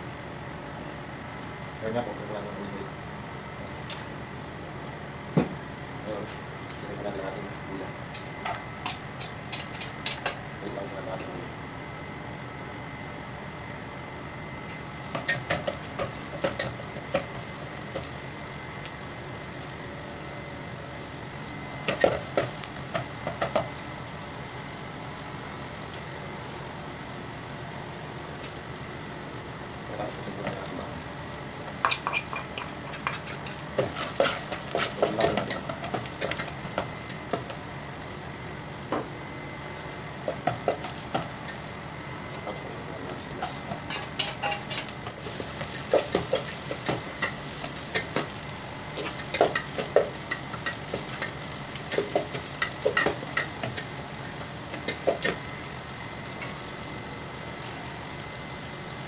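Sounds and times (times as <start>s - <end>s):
food sizzling in pan: 13.4s - 59.0s.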